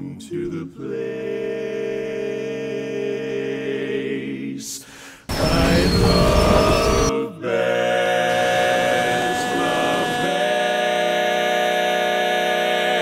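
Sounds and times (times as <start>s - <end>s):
male quartet singing a cappella: 0.0s - 13.0s
loud rushing noise burst: 5.3s - 7.1s.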